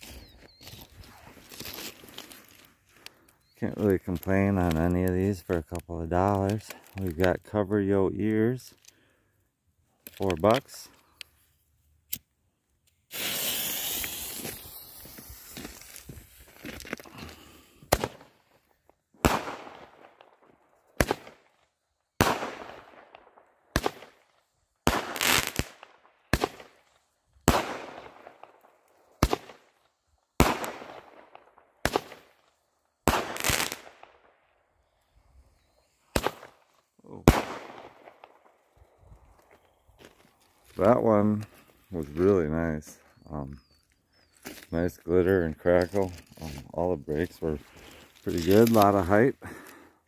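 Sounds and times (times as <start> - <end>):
firework bangs with crackle: 13.1 - 16.2, 17.9 - 18.3, 19.2 - 20.2, 21.0 - 21.4, 22.2 - 23.1, 23.7 - 24.2, 24.8 - 26.8, 27.4 - 28.4, 29.2 - 29.6, 30.4 - 32.4, 33.0 - 34.0, 36.1 - 36.6, 37.2 - 38.4
firework fuse hissing: 13.1 - 16.6.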